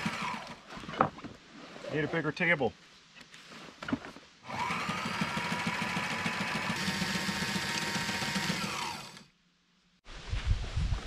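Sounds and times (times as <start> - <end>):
sewing machine stitching: 4.5 - 9.3.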